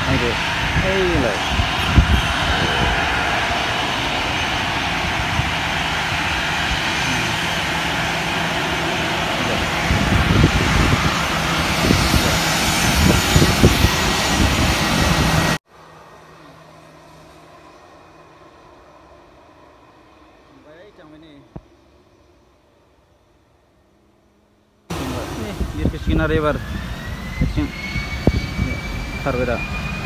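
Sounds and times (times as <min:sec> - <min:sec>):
wind buffeting on microphone: 0:00.0 - 0:15.6, 0:24.9 - 0:30.0
aeroplane engines roaring: 0:00.0 - 0:30.0.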